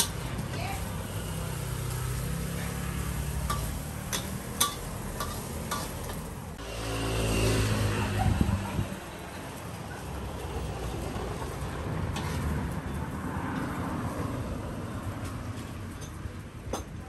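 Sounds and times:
rice sizzling in a wok: 0.0s - 6.9s
road vehicle passing: 0.0s - 16.6s
metal spatula scraping a pan: 2.5s - 6.3s.

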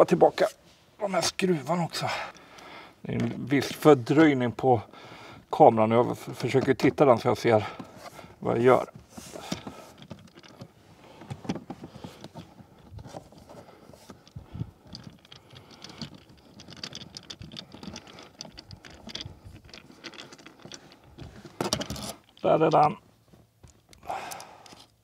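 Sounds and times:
hands handling plastic trim and screws: 7.7s - 23.0s, 23.7s - 25.0s.

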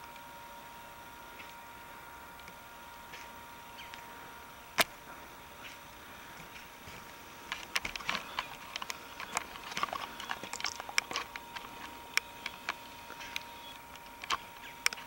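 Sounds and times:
faint steady hum: 0.0s - 15.0s
sharp clicks and crackles: 2.4s - 4.1s, 4.7s - 5.8s, 6.4s - 15.0s.

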